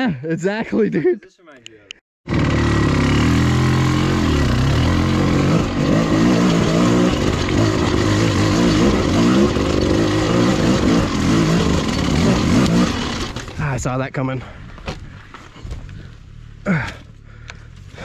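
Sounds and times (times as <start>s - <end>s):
two-stroke dirt bike engine revving: 2.3s - 13.7s.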